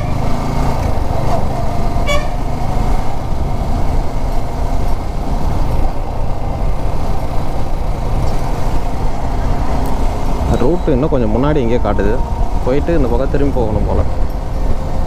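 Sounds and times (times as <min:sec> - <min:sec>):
motorcycle engine rumbling: 0:00.0 - 0:15.0
vehicle horn toot: 0:02.0 - 0:02.5.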